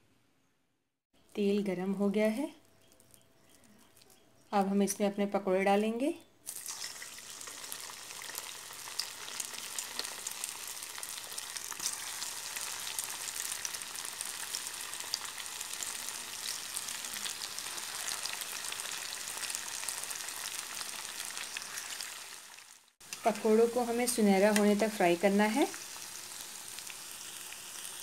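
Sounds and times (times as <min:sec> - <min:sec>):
food deep-frying in hot oil: 0:06.5 - 0:28.0
oil popping and crackling: 0:06.5 - 0:28.0.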